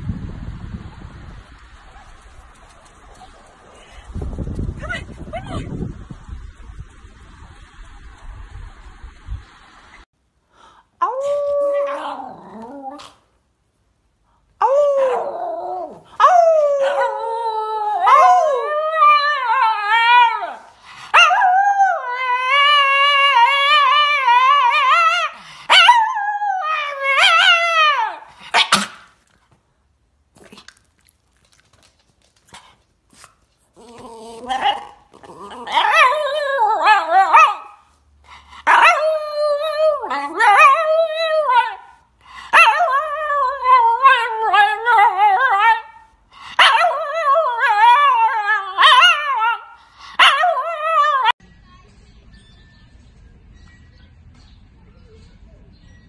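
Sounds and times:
dog howling: 14.6s - 28.3s, 33.8s - 37.8s, 38.7s - 46.0s.

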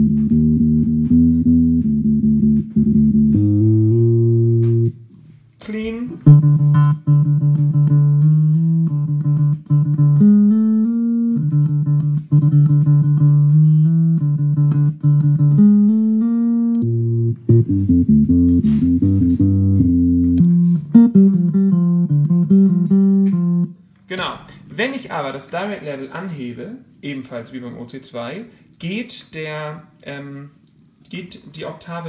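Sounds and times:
electric bass octave effect notes: 0.0s - 5.1s, 5.9s - 23.8s.

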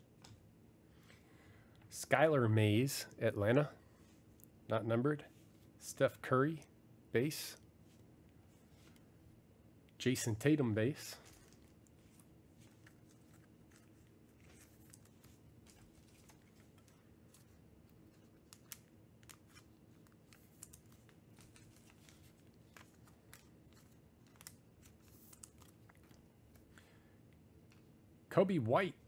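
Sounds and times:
trading cards clicking and rustling: 11.0s - 26.8s.

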